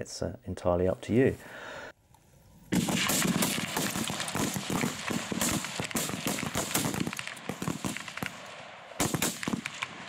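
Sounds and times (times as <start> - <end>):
rifle shots crackling: 2.7 - 10.0.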